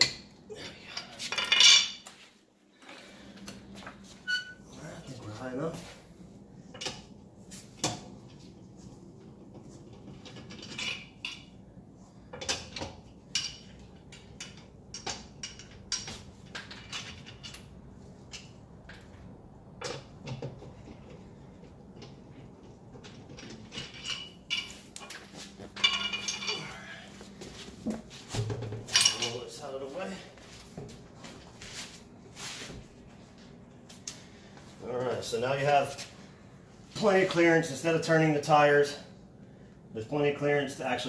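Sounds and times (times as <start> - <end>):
metal tools clinking and knocking: 1.0 - 2.1, 12.4 - 17.7, 23.0 - 27.0, 28.9 - 29.5.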